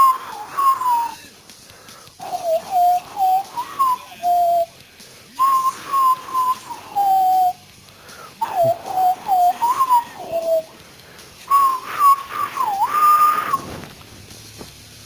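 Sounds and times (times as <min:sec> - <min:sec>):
person whistling a melody: 0:00.0 - 0:01.3, 0:02.2 - 0:07.6, 0:08.3 - 0:10.7, 0:11.5 - 0:13.7.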